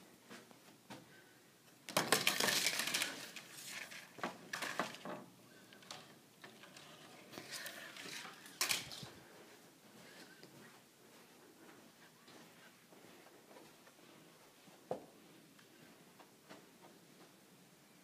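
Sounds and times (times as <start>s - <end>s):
window blind slats clattering: 1.9s - 9.1s.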